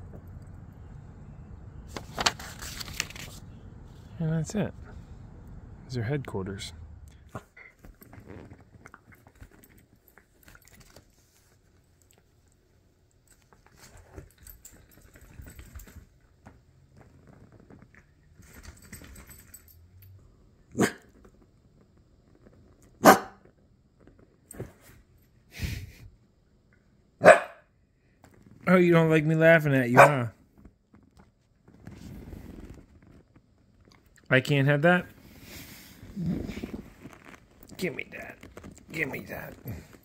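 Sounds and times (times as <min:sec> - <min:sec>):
dog barking: 0:20.8 - 0:21.1, 0:23.0 - 0:23.4, 0:27.2 - 0:27.7, 0:29.9 - 0:30.3.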